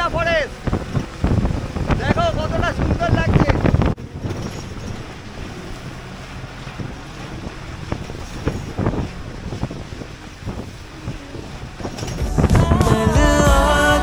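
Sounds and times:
bus rumbling: 0.0 - 14.0
rushing wind noise: 0.0 - 14.0
knocks and rattles: 4.0 - 5.3, 11.8 - 12.4.

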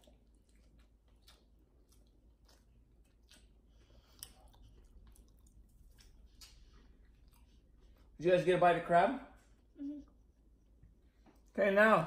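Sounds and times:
faint chewing: 0.0 - 8.2.

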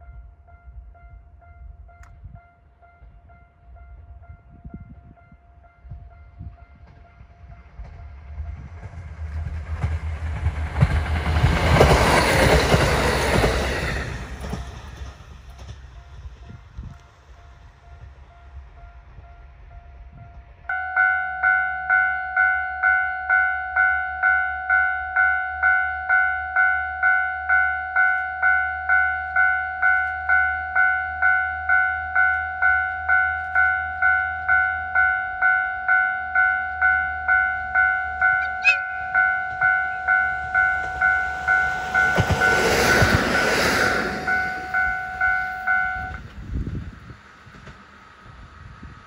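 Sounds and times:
diesel railcar passing: 0.0 - 49.0
level crossing bell ringing: 20.7 - 46.2.

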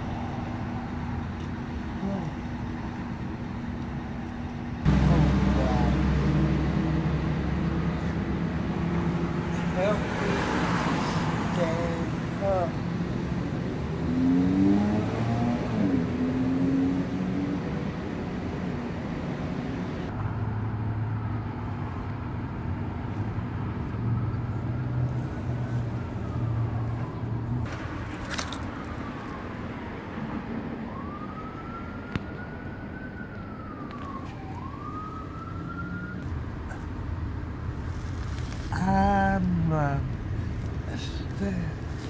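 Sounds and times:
street traffic rumble: 0.0 - 42.0
distant siren wailing: 4.8 - 20.2, 23.6 - 37.3.

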